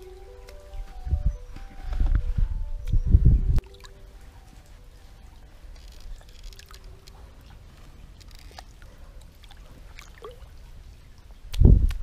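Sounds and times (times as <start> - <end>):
stream water sloshing and trickling: 3.6 - 12.0
small splashes: 5.7 - 11.6.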